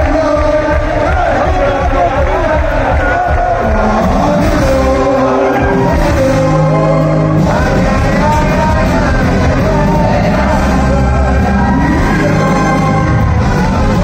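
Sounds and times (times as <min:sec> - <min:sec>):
man singing: 0:00.0 - 0:14.0
electric bass: 0:03.6 - 0:14.0
trumpet: 0:03.7 - 0:14.0.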